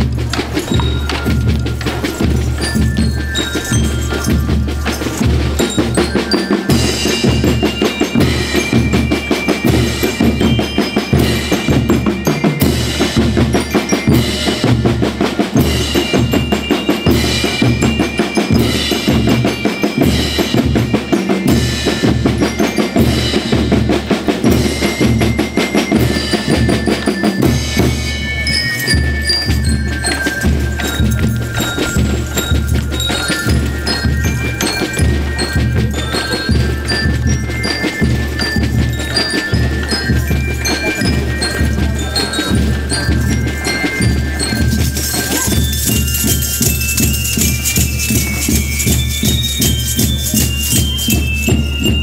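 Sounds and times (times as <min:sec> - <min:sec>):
drums beating march rhythm: 0:00.0 - 0:52.0
high melody of short tones: 0:25.0 - 0:52.0.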